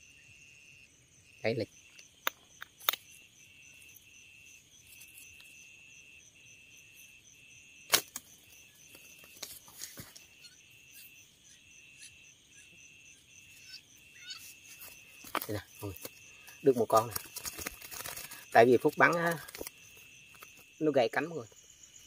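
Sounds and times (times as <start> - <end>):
insects trilling: 0.0 - 22.0
slingshot snap: 2.2 - 3.1, 7.9 - 8.3.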